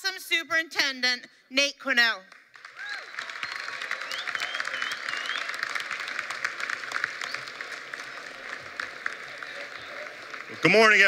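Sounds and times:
crowd applauding: 2.3s - 11.0s
high cheers: 2.6s - 11.0s.

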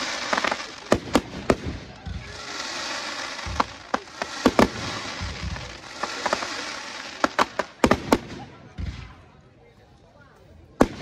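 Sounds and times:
loud rushing hiss: 0.0s - 7.9s
firework shells bursting: 0.0s - 8.4s.

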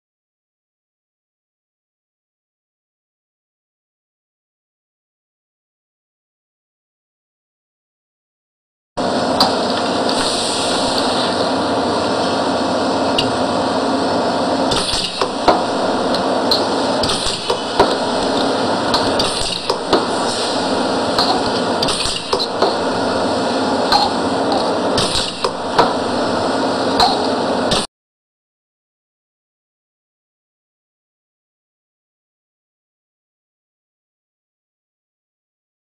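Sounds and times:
steady background noise: 9.0s - 27.9s
short air hisses: 10.2s - 11.5s
pneumatic press knocking: 14.7s - 23.1s, 23.8s - 26.3s, 26.9s - 27.9s.

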